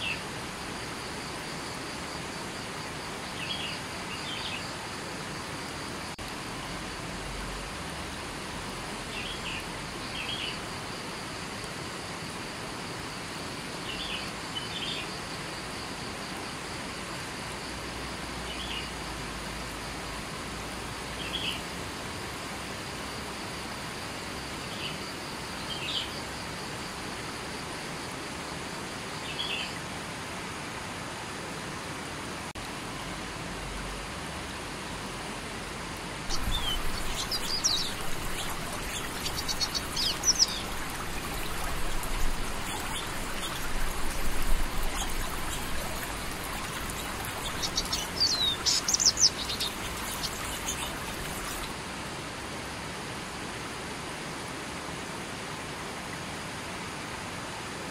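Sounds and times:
river water flowing over rocks: 0:26.6 - 0:57.8
faint bird chirps: 0:36.3 - 0:51.7
songbirds chirping rapidly: 0:36.3 - 0:51.7.

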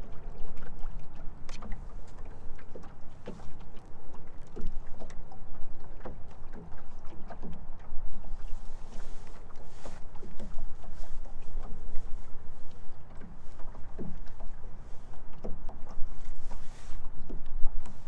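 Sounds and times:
water lapping against boat hull: 0:00.0 - 0:18.0.

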